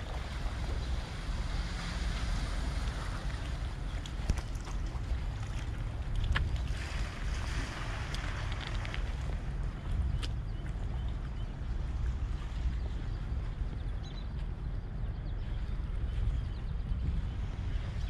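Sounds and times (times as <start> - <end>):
water lapping against rocks: 0.0 - 13.4
wind rumbling on microphone: 0.0 - 18.0.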